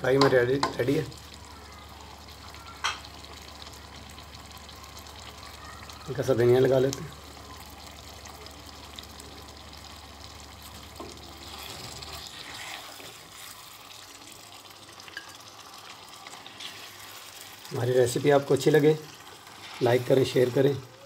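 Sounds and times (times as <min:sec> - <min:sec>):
food sizzling in a wok: 0:00.0 - 0:21.0
spatula scraping: 0:11.4 - 0:13.8, 0:16.3 - 0:17.3, 0:19.2 - 0:20.3.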